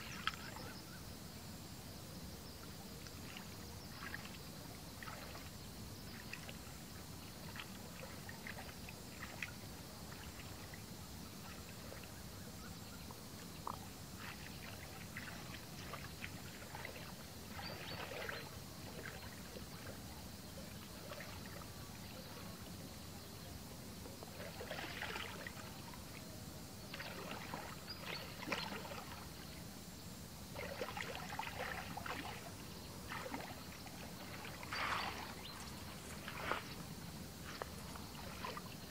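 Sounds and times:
muddy water sloshing and splashing: 0.0s - 0.8s, 2.8s - 38.9s.

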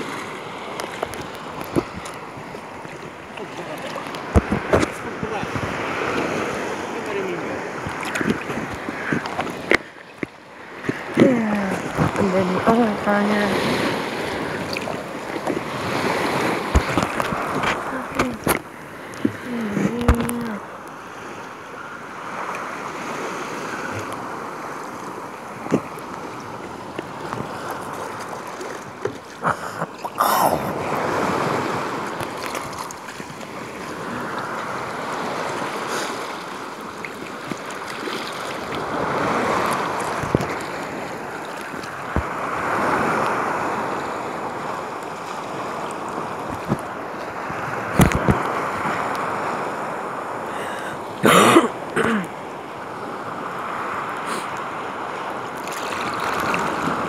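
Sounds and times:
water sloshing around kayak: 0.0s - 51.4s, 55.2s - 57.0s
wind on microphone: 4.0s - 20.7s, 37.3s - 50.4s.

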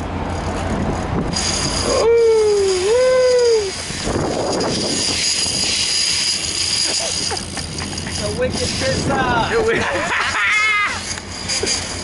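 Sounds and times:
boat motor idling: 0.0s - 12.0s
person whooping: 1.8s - 3.8s, 10.3s - 11.0s.

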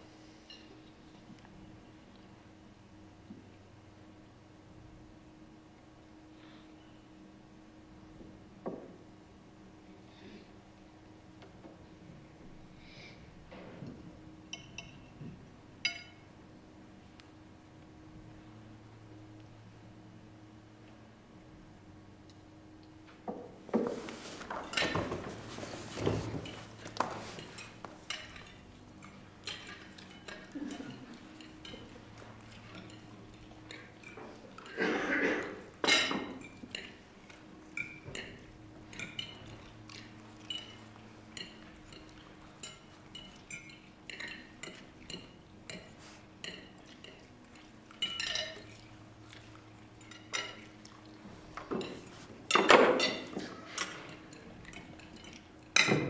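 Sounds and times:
cutlery clinking on plates: 15.8s - 16.2s, 23.8s - 33.1s, 33.7s - 37.0s, 37.8s - 48.8s, 51.6s - 56.0s
dishes clattering: 23.3s - 33.1s, 34.0s - 37.0s, 48.0s - 48.8s, 51.6s - 56.0s.

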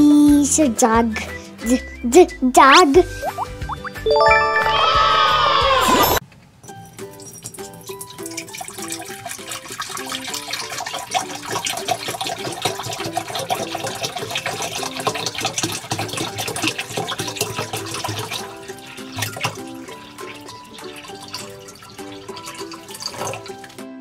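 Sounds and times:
light background music: 0.0s - 24.0s
water pouring into glass bowl: 7.1s - 23.8s.

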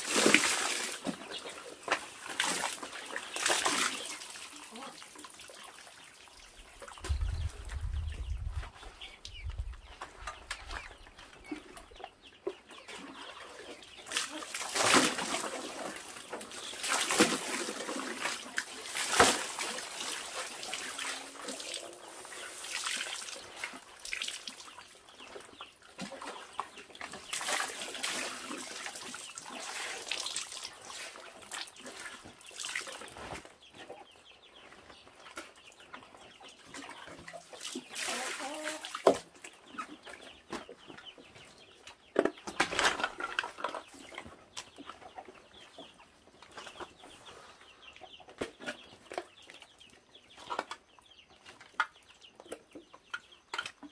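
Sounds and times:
water splashing and sloshing: 0.0s - 12.0s, 12.8s - 33.5s, 36.7s - 40.7s
chickens clucking: 1.0s - 22.7s, 30.8s - 53.9s.

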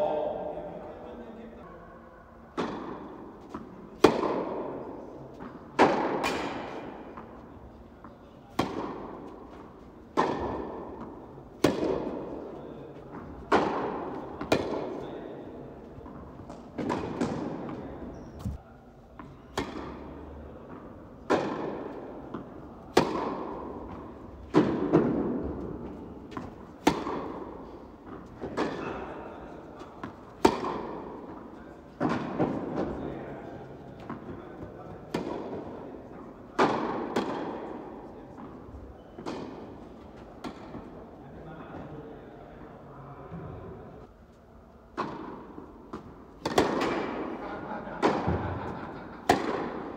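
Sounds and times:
tennis ball bouncing on court: 2.5s - 7.4s, 8.0s - 15.2s, 15.9s - 18.6s, 19.2s - 29.1s, 30.0s - 32.9s, 33.9s - 38.6s, 39.2s - 41.0s, 44.9s - 47.2s, 49.2s - 49.9s
tennis ball hitting rackets: 2.5s - 18.6s, 19.2s - 33.1s, 33.9s - 41.0s, 44.9s - 47.4s, 48.0s - 48.5s, 49.2s - 49.9s.

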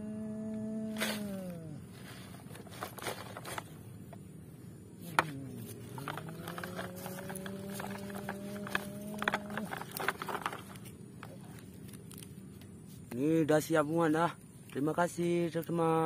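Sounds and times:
steady hum: 0.0s - 16.0s
plastic toy truck knocking and clicking: 5.2s - 10.8s.

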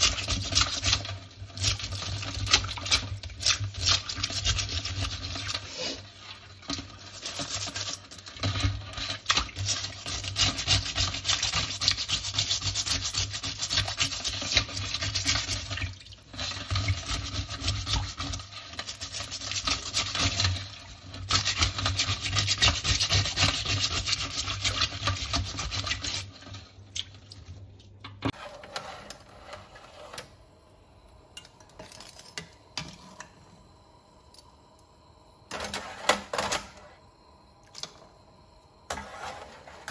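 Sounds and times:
brush scrubbing crab shells: 0.0s - 28.4s.

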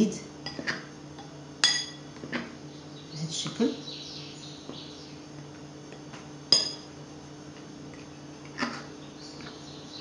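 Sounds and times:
spoon clinking against glass: 1.6s - 2.0s, 6.5s - 6.9s.

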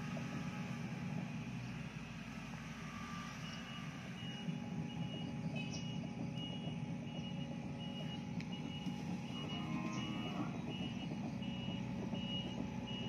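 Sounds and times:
excavator diesel engine running: 0.0s - 13.0s
travel alarm beeping: 3.4s - 13.0s.

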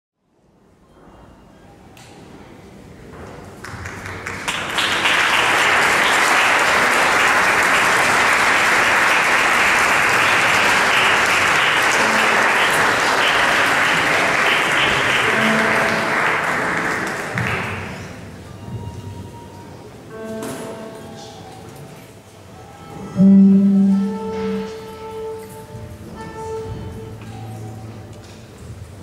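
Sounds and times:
audience applauding: 3.6s - 18.4s.

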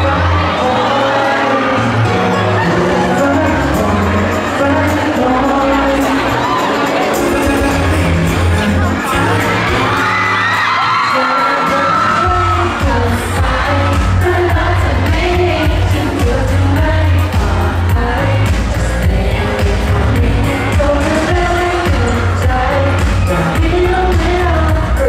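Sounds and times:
man singing into microphone: 0.0s - 10.2s, 10.8s - 25.0s
fans screaming: 0.0s - 16.7s
pop backing track with bass beat: 0.0s - 25.0s.

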